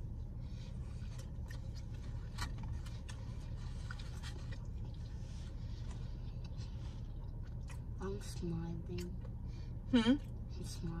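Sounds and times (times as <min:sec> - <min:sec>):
person chewing pizza: 0:00.1 - 0:08.0.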